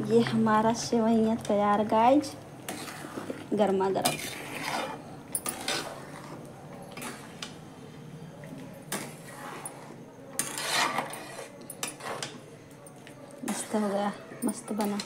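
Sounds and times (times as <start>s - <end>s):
metal spatula scraping pan: 2.6s - 7.6s, 8.9s - 12.4s, 13.4s - 15.0s.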